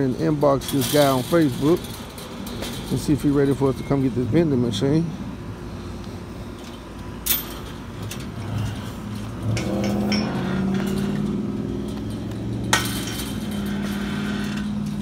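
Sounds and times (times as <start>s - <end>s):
low engine hum: 1.5s - 15.0s
chain and padlock clinking: 7.2s - 15.0s
sharp metal clank: 9.4s - 14.8s.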